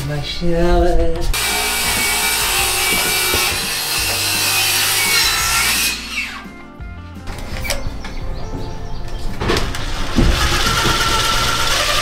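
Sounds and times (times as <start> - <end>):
power saw cutting wood: 1.4 - 6.5, 9.4 - 12.0.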